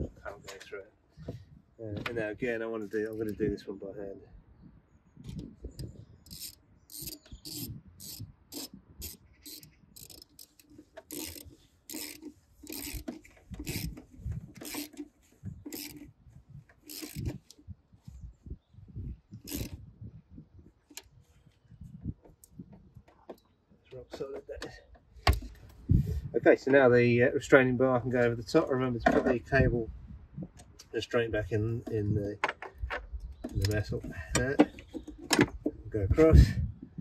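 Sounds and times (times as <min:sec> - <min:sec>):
hand ratchet clicking: 0:06.2 - 0:15.1, 0:15.7 - 0:16.1, 0:16.8 - 0:17.6, 0:19.5 - 0:19.8.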